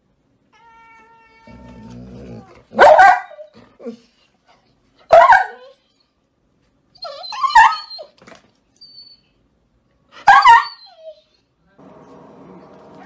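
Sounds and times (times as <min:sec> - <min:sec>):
dog barking: 0:02.7 - 0:03.4, 0:05.1 - 0:05.7, 0:10.2 - 0:10.7.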